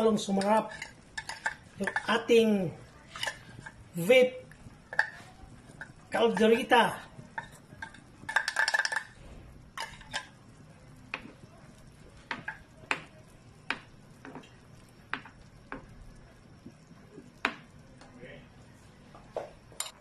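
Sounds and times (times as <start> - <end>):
stirring stew in metal pot: 0.0 - 16.0.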